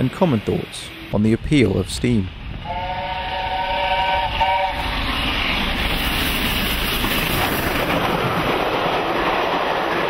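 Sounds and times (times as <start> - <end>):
train chime whistle: 2.6 - 4.8
train wheels rushing and rattling: 3.6 - 10.0.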